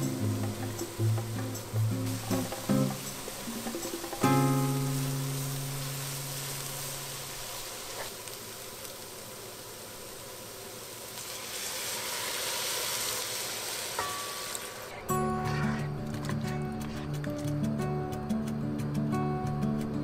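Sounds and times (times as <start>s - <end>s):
food sizzling in a pot: 0.0s - 15.9s
stock pouring and splashing: 11.1s - 15.0s.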